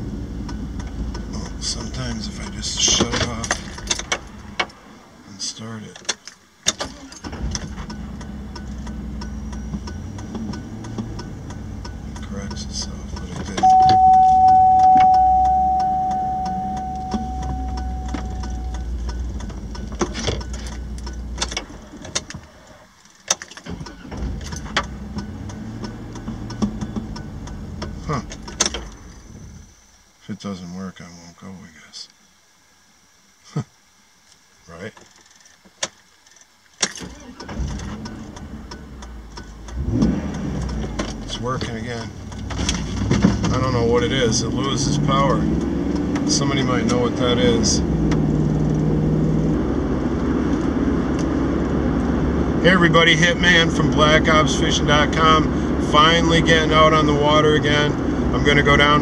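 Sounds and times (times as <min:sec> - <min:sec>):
engine low rumble: 0:00.0 - 0:05.6, 0:07.0 - 0:22.5, 0:23.9 - 0:30.0, 0:37.2 - 0:59.0
light ticking: 0:07.9 - 0:13.4, 0:14.1 - 0:21.6
ignition key click: 0:13.6 - 0:18.9
dashboard warning chime: 0:13.6 - 0:19.3.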